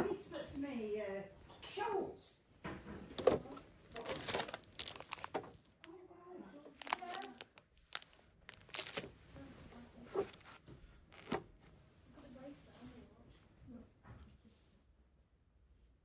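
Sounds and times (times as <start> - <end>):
plastic packaging crinkling: 3.1 - 6.0, 6.6 - 11.7.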